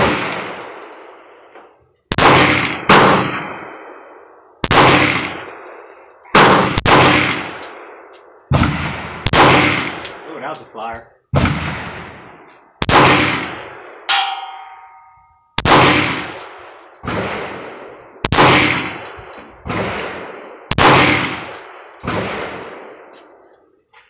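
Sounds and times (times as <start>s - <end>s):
pistol shots echoing: 0.0s - 1.4s, 2.1s - 4.0s, 4.6s - 10.6s, 12.8s - 23.4s
short metallic ring: 13.6s - 15.6s.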